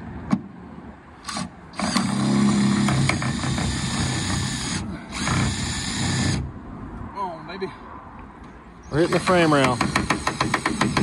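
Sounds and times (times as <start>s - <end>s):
power drill driving screw into metal: 1.2s - 6.4s.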